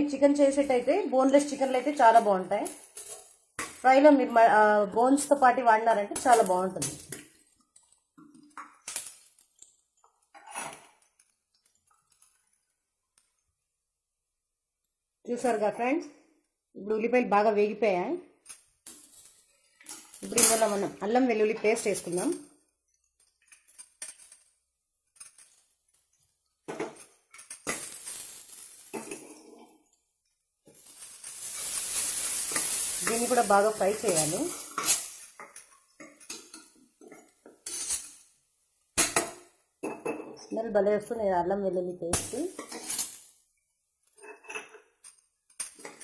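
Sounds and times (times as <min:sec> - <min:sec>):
hot oil sizzling: 0:00.0 - 0:13.7, 0:18.7 - 0:46.0
spoon clinking and scraping pot: 0:01.2 - 0:03.8, 0:06.2 - 0:12.4, 0:18.5 - 0:30.0, 0:30.7 - 0:38.3, 0:42.5 - 0:43.3, 0:44.1 - 0:46.0.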